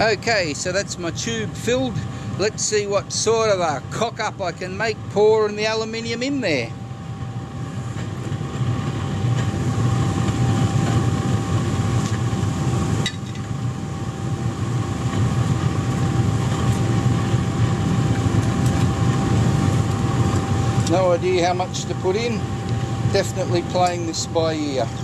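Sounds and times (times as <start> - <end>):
oil burner roar: 0.0 - 25.0
thin steady whine: 0.0 - 25.0.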